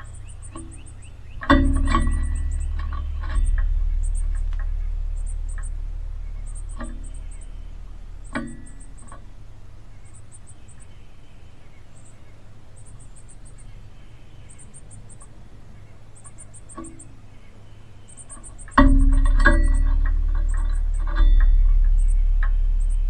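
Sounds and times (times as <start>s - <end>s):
faint clicks: 0.0s - 9.3s
insects chirping: 0.0s - 23.0s.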